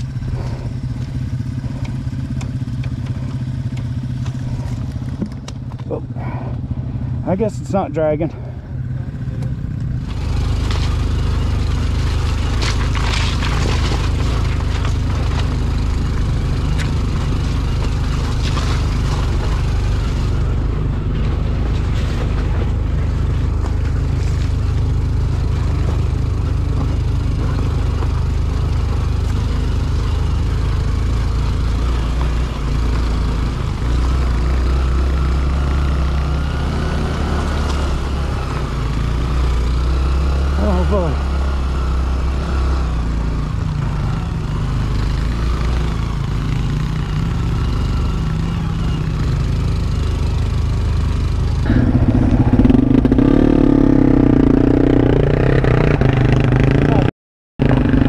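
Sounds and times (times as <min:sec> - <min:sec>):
motorcycle engine running: 0:00.0 - 0:58.0
stones knocking and clattering: 0:12.4 - 0:15.6.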